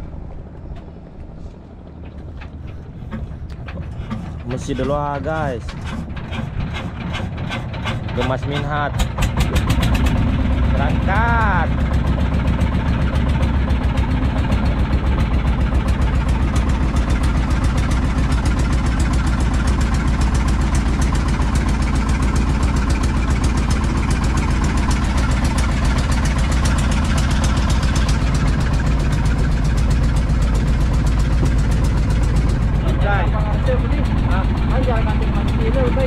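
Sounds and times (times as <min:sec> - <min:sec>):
boat engine running: 0:00.0 - 0:36.0.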